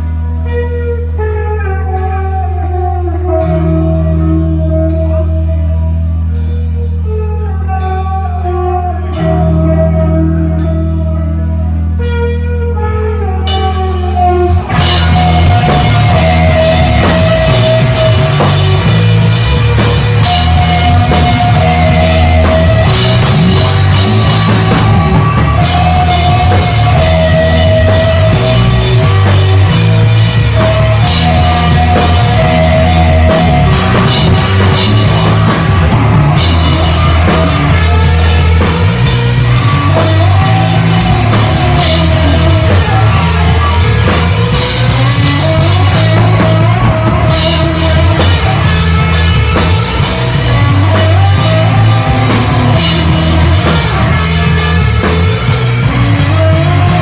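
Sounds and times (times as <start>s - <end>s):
picked electric guitar notes: 0.0s - 57.0s
rock band playing heavy riff: 0.0s - 57.0s
sustained bass note: 13.4s - 57.0s.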